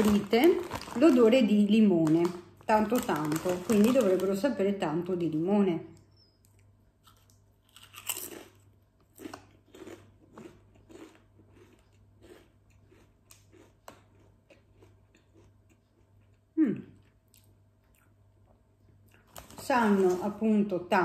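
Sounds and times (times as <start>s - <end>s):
person crunching potato chip: 7.0s - 16.4s.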